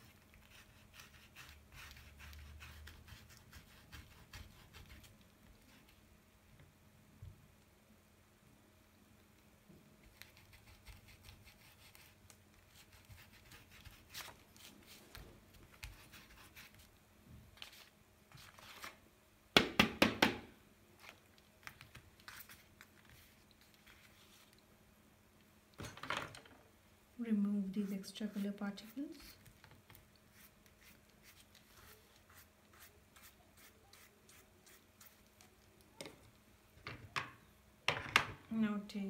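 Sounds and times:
art tool scratching on paper: 0:00.1 - 0:05.1, 0:10.1 - 0:15.0, 0:15.7 - 0:16.9.

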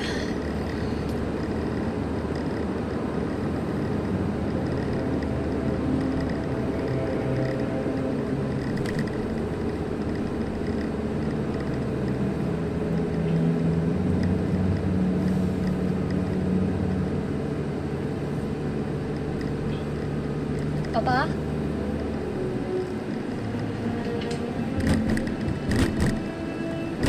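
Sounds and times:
car engine hum: 0:00.0 - 0:27.0
road noise: 0:00.0 - 0:27.0.

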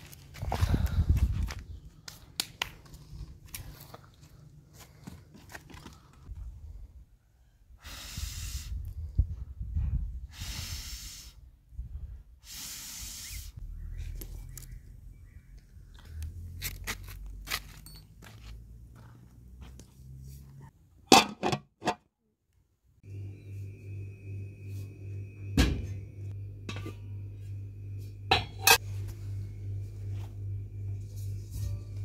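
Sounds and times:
breath blown into a fire: 0:07.8 - 0:09.0, 0:10.2 - 0:11.4.

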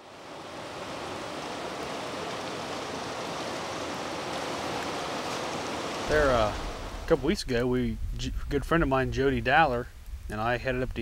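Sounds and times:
water rushing over rapids: 0:00.0 - 0:07.4.

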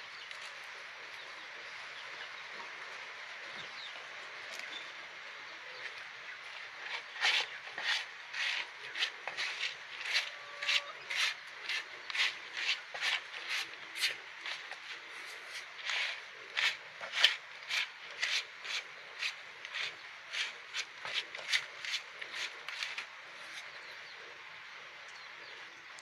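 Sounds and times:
hand rubbing dry bran mixture: 0:06.8 - 0:23.1.

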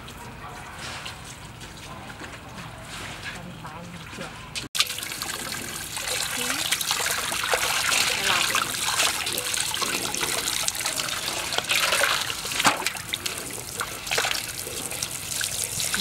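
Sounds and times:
water sloshing: 0:01.4 - 0:16.0
hose water splashing into metal basin: 0:04.0 - 0:16.0.

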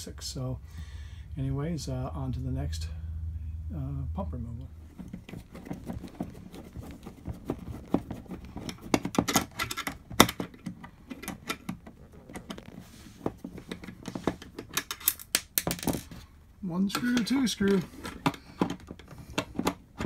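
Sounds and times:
screwdriver clicking and scraping: 0:05.1 - 0:15.4.

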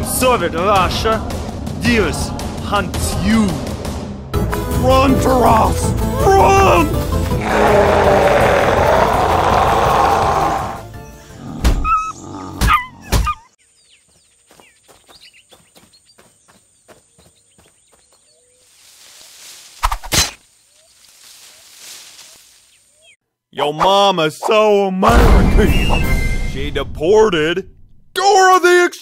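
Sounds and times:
music: 0:00.0 - 0:11.8, 0:25.2 - 0:28.0
loud wavering cry: 0:07.4 - 0:10.8.

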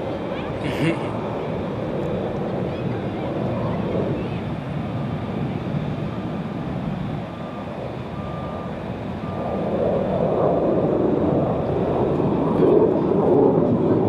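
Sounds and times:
jet engine rushing: 0:00.0 - 0:14.0
reversing alarm beeps: 0:07.2 - 0:09.9.

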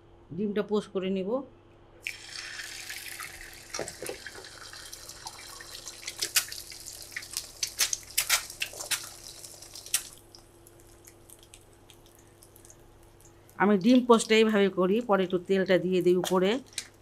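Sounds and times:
egg sizzling in oil: 0:02.1 - 0:13.4.

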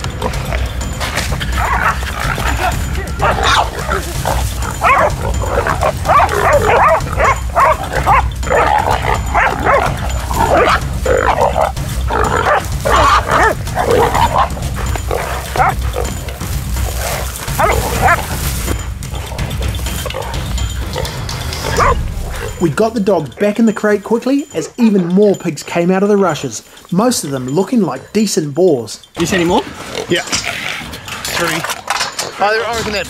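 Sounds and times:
dogs barking: 0:00.0 - 0:22.6.

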